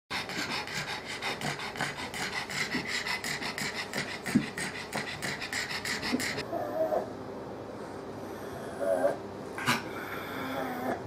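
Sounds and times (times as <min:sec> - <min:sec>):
dog panting with wheezing: 0:00.1 - 0:06.4.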